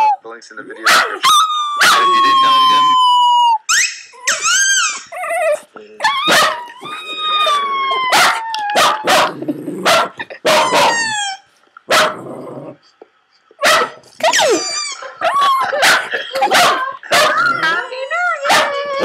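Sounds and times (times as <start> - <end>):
dog barking: 0.8 - 1.2, 1.8 - 2.1, 6.3 - 6.6, 8.1 - 11.1, 11.9 - 12.2, 13.6 - 14.4, 15.7 - 17.6, 18.4 - 18.8
dog howling: 1.2 - 9.4, 10.5 - 11.4, 16.7 - 19.0.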